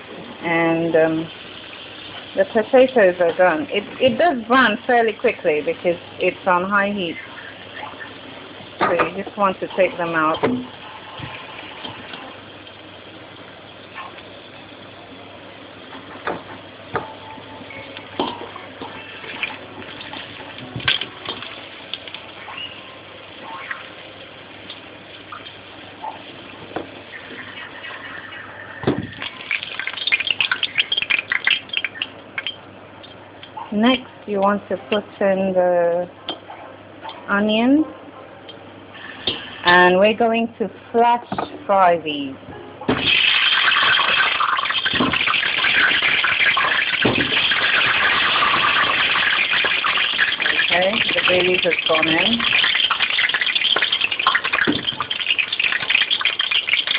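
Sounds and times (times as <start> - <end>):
potatoes sizzling in oil: 0.0 - 17.0, 17.6 - 32.6, 43.0 - 56.9
sharp crackling and spitting oil: 27.0 - 32.7, 43.0 - 56.9.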